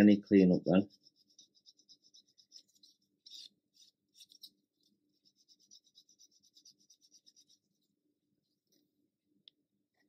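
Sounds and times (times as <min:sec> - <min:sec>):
rubbing on small plastic part: 0:00.6 - 0:08.8.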